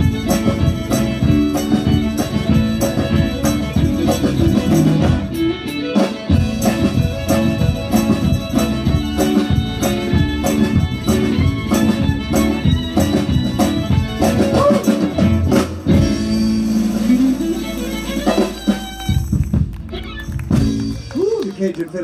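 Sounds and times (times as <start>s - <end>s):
acoustic guitar: 0.0s - 19.4s
accordion: 0.0s - 21.1s
fiddle: 0.0s - 21.1s
bass: 0.0s - 22.0s
drums: 0.0s - 22.0s.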